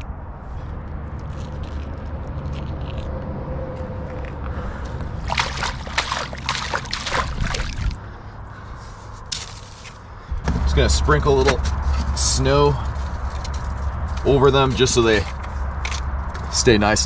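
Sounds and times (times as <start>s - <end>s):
water splashing: 5.2s - 8.0s.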